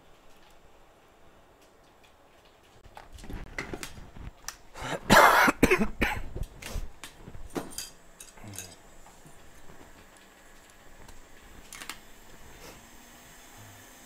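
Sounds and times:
man coughing: 0:04.8 - 0:06.3.

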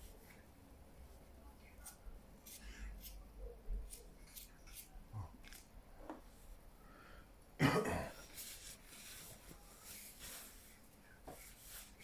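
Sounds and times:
person coughing: 0:07.6 - 0:08.2.

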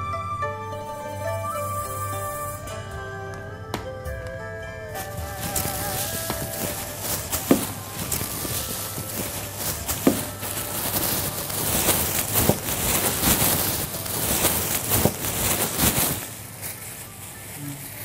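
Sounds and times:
plastic bags rustling: 0:04.8 - 0:18.0.

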